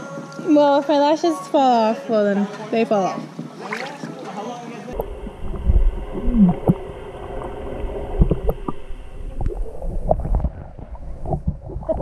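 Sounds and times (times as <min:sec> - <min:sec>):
muffled water sloshing and gurgling: 0:05.0 - 0:12.0.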